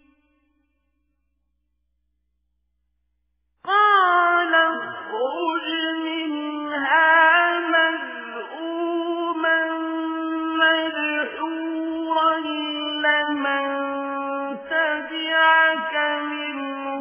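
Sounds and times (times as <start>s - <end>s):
person chanting recitation: 3.7s - 17.0s.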